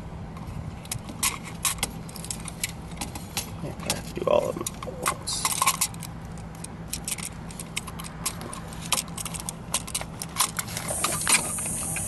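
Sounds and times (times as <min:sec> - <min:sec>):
small metallic clicks and clinks: 0:03.8 - 0:11.5.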